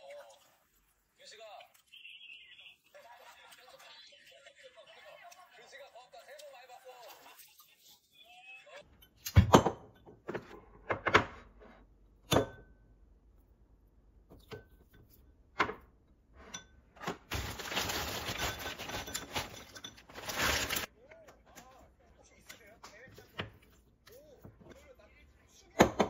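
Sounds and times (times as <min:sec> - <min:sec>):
frozen berries rustling into bowl: 0:17.3 - 0:20.9.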